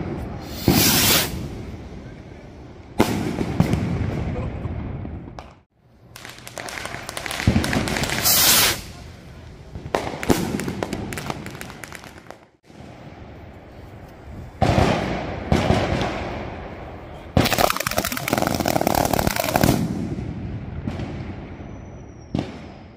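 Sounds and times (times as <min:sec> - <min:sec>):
firework bang with crackle: 0:00.0 - 0:01.5, 0:03.0 - 0:05.6, 0:06.2 - 0:09.0, 0:09.8 - 0:12.4, 0:14.6 - 0:16.4
firecrackers crackling: 0:00.0 - 0:02.0, 0:03.0 - 0:13.7, 0:14.5 - 0:16.8, 0:17.4 - 0:21.7.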